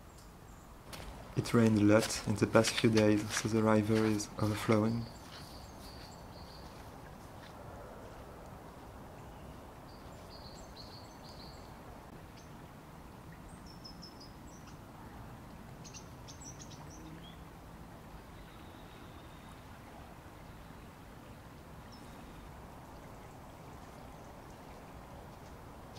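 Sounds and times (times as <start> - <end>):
small birds chirping: 1.4 - 7.4, 9.2 - 12.6, 15.8 - 17.5.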